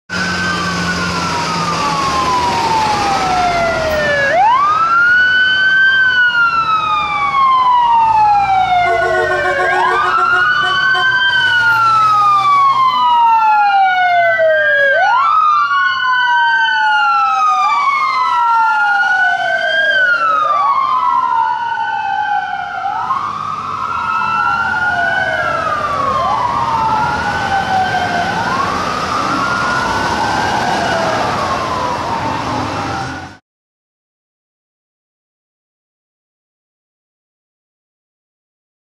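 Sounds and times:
traffic rumbling: 0:00.1 - 0:33.4
wailing emergency sirens: 0:00.1 - 0:33.4.

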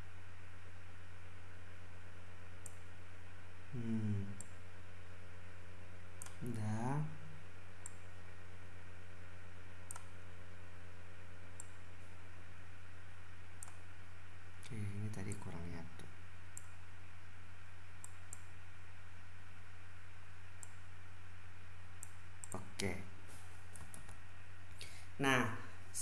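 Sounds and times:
low electrical hum: 0:00.0 - 0:26.0
man murmuring: 0:03.7 - 0:04.4
computer mouse clicking: 0:09.9 - 0:10.1, 0:11.6 - 0:11.8, 0:13.6 - 0:13.8, 0:18.0 - 0:18.5, 0:22.0 - 0:22.7.

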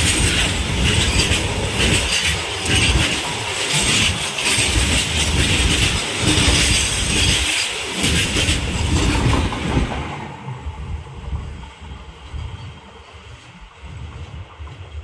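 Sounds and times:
wheels clicking over rail joints: 0:00.0 - 0:10.2
train wheels rumbling on rails: 0:00.0 - 0:15.0.

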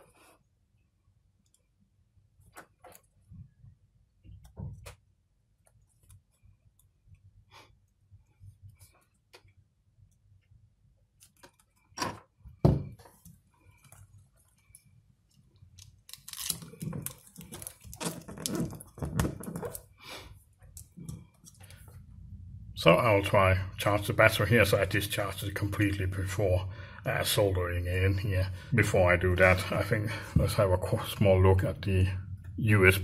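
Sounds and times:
tape crackling and rustling: 0:13.0 - 0:22.0.

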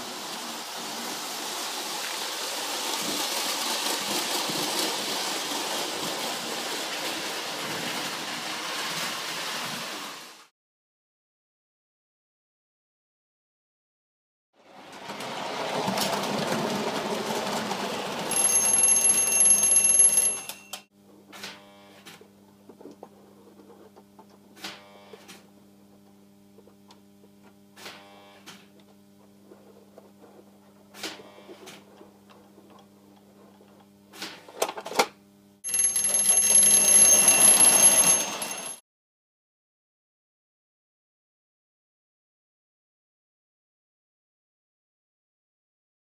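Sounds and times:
toy train running on track: 0:00.2 - 0:09.2, 0:14.7 - 0:20.8, 0:35.6 - 0:38.8.

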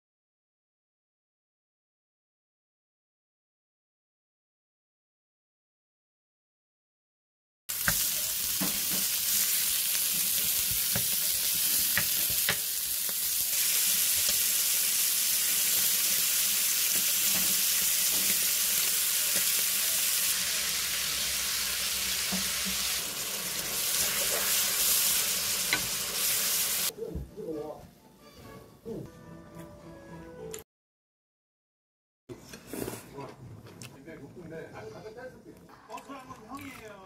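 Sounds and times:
meat sizzling in a pan: 0:07.7 - 0:26.9
wooden spatula tapping and scraping: 0:10.2 - 0:12.7.

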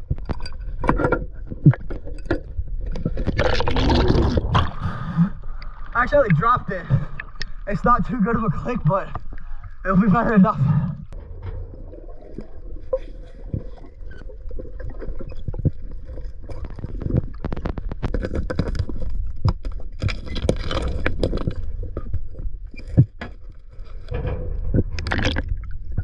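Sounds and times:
river water sloshing and gurgling: 0:00.0 - 0:22.9
magnet scraping riverbed: 0:13.0 - 0:25.7
sharp clicks and knocks: 0:22.8 - 0:26.0.

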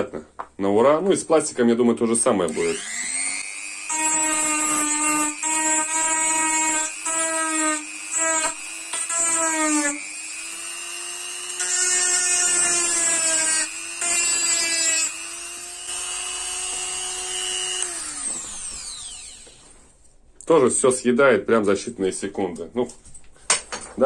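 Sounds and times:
rotary tool motor whining: 0:02.5 - 0:19.6.

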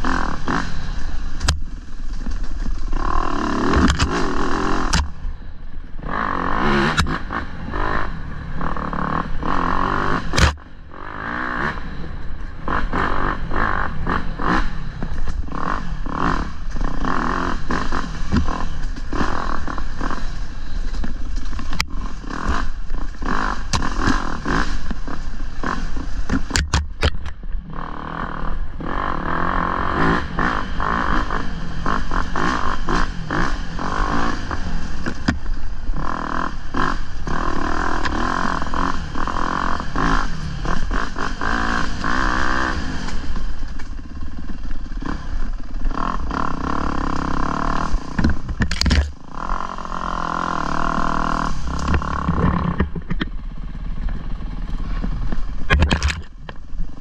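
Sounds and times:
dirt bike engine revving: 0:00.0 - 0:57.0
bike knocking against rocks: 0:55.3 - 0:56.6.

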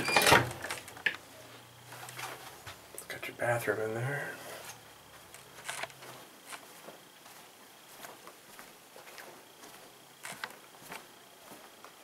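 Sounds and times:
footsteps on carpet: 0:05.1 - 0:12.0.

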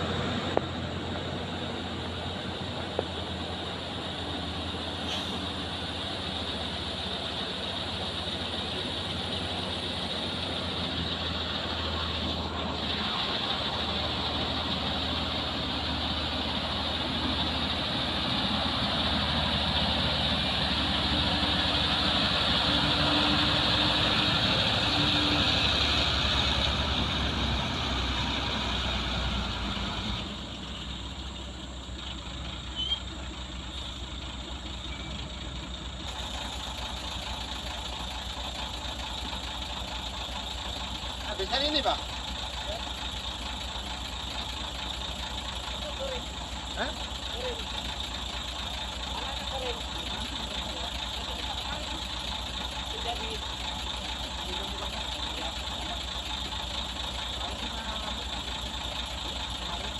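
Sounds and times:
truck diesel engine: 0:00.0 - 0:59.9
truck engine idling: 0:00.0 - 0:59.9.

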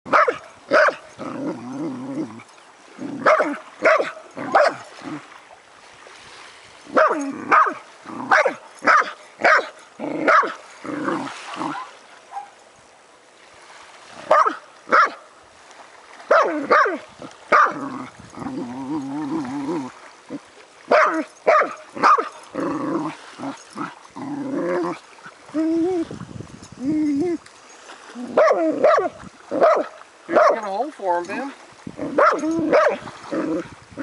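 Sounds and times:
dog barking and yipping: 0:00.1 - 0:01.1, 0:03.2 - 0:04.9, 0:06.9 - 0:10.6, 0:11.6 - 0:12.6, 0:14.3 - 0:15.3, 0:16.3 - 0:17.8, 0:20.9 - 0:22.5, 0:28.3 - 0:30.6, 0:32.1 - 0:33.0.

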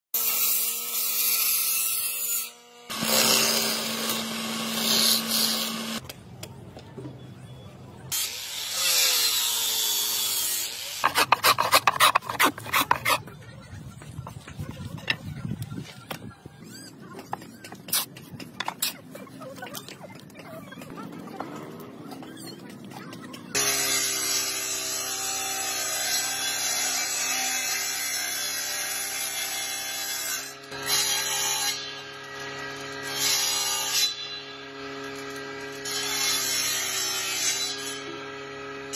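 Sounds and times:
table saw cutting wood: 0:00.2 - 0:06.0, 0:08.1 - 0:13.2, 0:23.6 - 0:38.9
shaving wood with falling whine: 0:11.0 - 0:13.2
quick rasping strokes on wood: 0:11.0 - 0:13.3.

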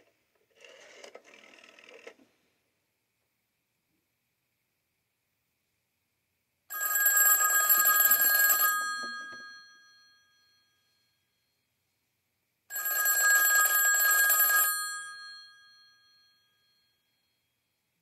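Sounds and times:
rotary telephone bell ringing: 0:06.7 - 0:11.2, 0:12.7 - 0:17.4.

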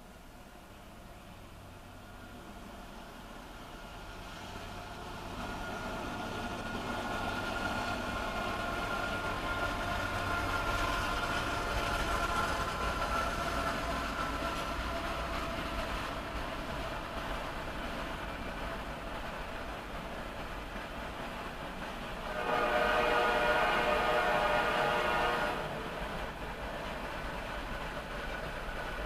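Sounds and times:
freight train rumbling past: 0:00.0 - 0:29.0.

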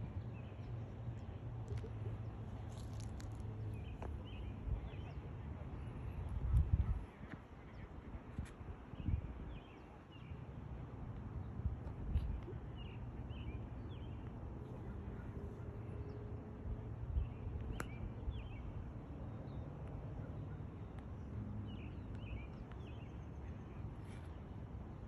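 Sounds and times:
steady low rumble: 0:00.0 - 0:09.8
small birds chirping: 0:00.4 - 0:07.0.

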